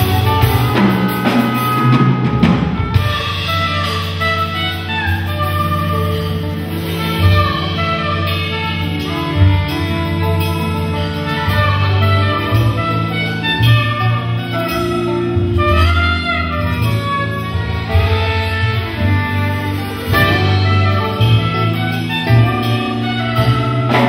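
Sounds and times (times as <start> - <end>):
plucked double bass: 0.0 - 24.0
saxophone melody: 0.0 - 24.0.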